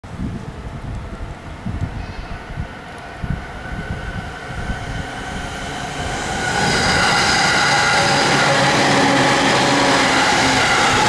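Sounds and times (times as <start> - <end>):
electric train on rails: 0.1 - 11.0
train motor whine: 3.8 - 11.0.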